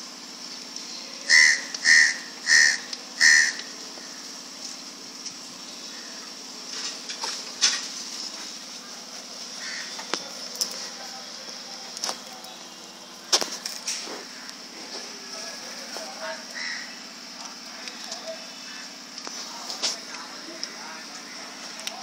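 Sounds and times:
animal calling: 1.2 - 4.3, 8.9 - 11.2, 16.4 - 17.1.

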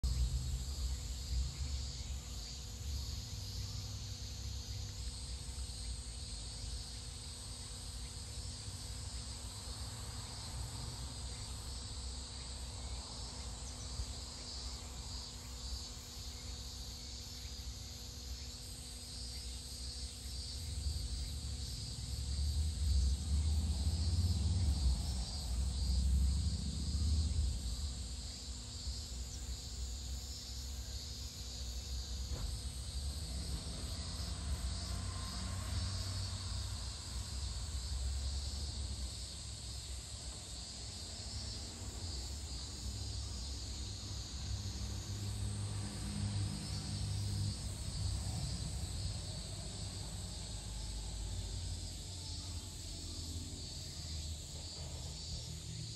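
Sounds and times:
high-pitched insect chorus: 0.0 - 55.9
low rumble: 22.1 - 28.1.

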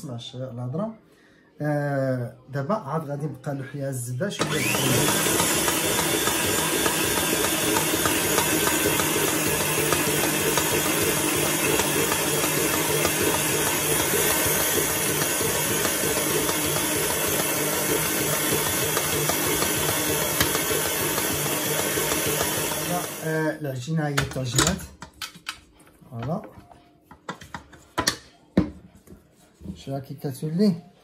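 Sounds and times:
stand mixer kneading dough: 4.4 - 23.5.

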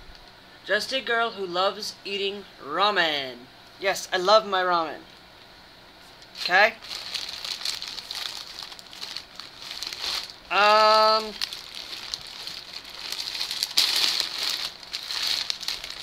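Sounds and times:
plastic bag crinkling: 6.2 - 16.0.

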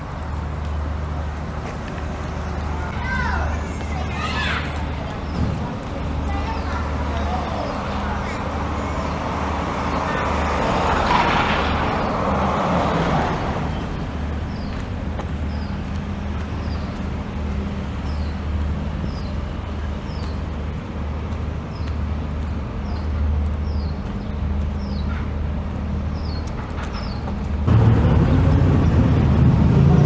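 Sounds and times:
traffic rumble: 0.0 - 30.0
vehicle passing close: 7.2 - 14.6, 27.6 - 30.0.

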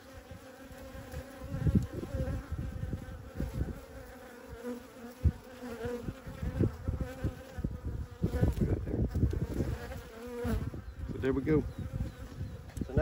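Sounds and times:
bees buzzing: 0.0 - 13.0.

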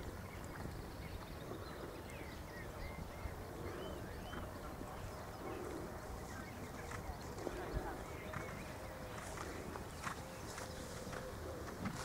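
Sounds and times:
horse hoofbeats on grass: 6.7 - 12.0.

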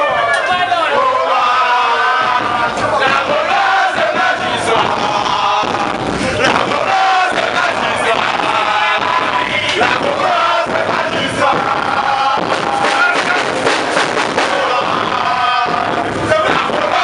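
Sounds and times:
group of men singing: 0.0 - 17.0.

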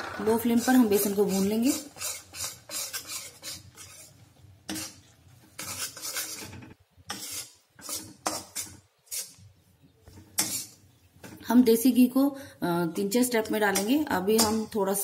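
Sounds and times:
metal spatula scraping iron pan: 0.4 - 9.4, 10.1 - 11.4, 13.7 - 14.7.

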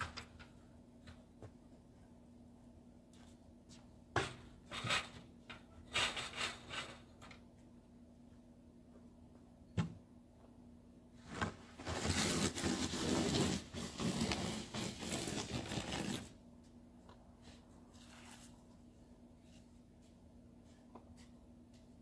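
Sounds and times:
faint steady hum: 0.0 - 12.0
rough scraping noise: 11.2 - 16.4.

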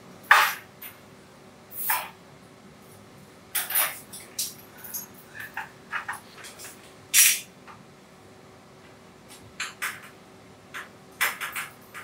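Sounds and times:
faint steady hum: 0.0 - 12.0
metallic clicks and clatters: 3.5 - 7.5, 9.3 - 12.0.

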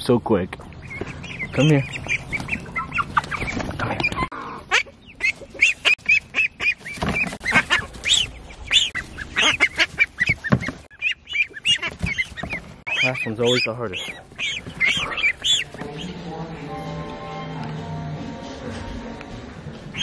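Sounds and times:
ducklings peeping: 0.0 - 16.5.

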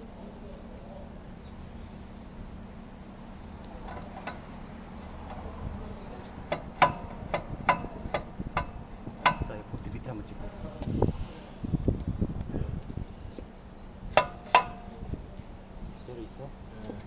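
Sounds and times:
sharp metallic clicks: 0.0 - 2.4, 3.6 - 4.6, 6.4 - 9.6.

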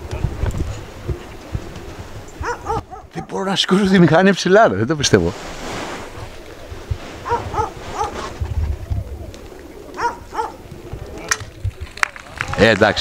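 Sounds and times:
distant animal calls: 2.4 - 3.3, 7.2 - 8.4, 9.1 - 10.7.

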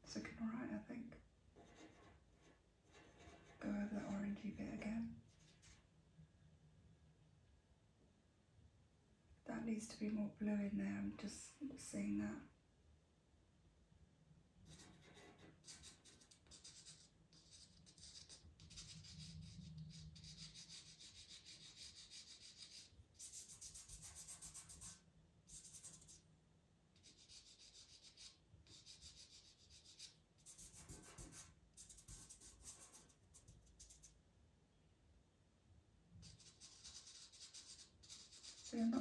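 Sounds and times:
pencil scratching on paper: 1.6 - 4.1, 5.3 - 5.8, 14.7 - 26.2, 27.0 - 34.2, 36.2 - 39.0.

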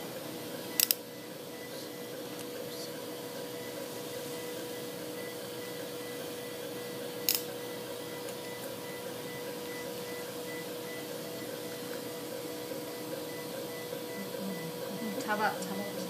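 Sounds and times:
operating room equipment humming: 0.0 - 16.0
sharp click: 0.8 - 1.0.

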